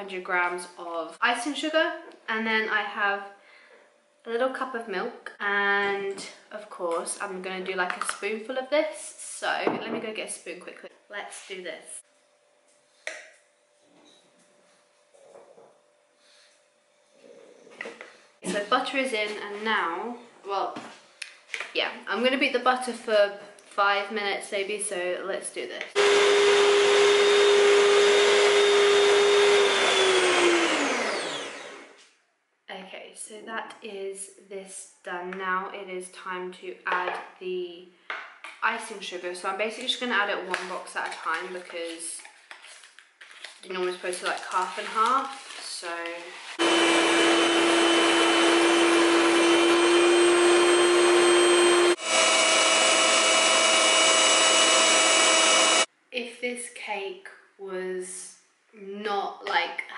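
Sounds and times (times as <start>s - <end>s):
motor winding down: 26.0s - 32.0s, 46.4s - 55.9s
stand mixer motor whining: 26.0s - 32.0s, 46.4s - 55.9s.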